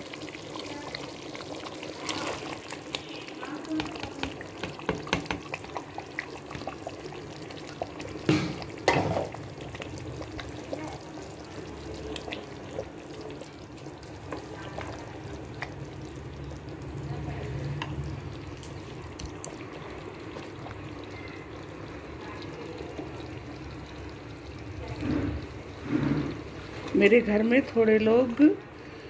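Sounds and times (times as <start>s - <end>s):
gravy bubbling: 0.0s - 29.0s
vegetables splashing into gravy: 1.2s - 15.8s
ladle stirring: 1.3s - 15.8s
loud knocks on metal pot: 4.0s - 5.5s, 8.3s - 9.2s.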